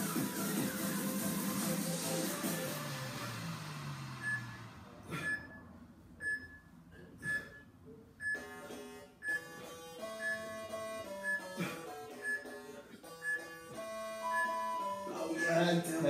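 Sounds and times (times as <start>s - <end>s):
background music: 0.0s - 4.4s, 9.2s - 16.0s
timer beeping: 4.2s - 4.5s, 5.2s - 16.0s.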